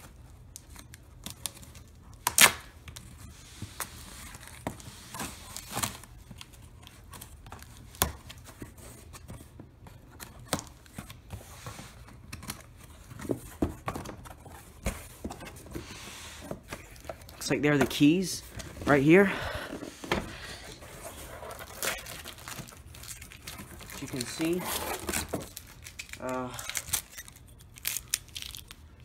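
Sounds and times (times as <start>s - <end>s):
scissors cutting packing tape: 0.6s - 2.7s
cardboard flaps rustling and knocking: 13.0s - 19.1s.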